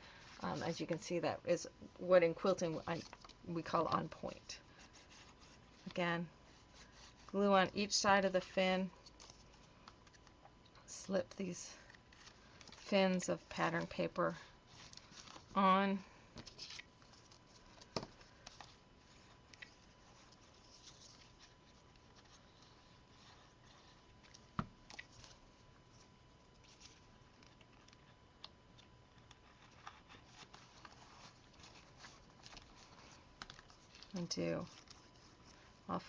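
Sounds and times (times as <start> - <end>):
cardstock rustling and tapping: 16.3 - 21.3.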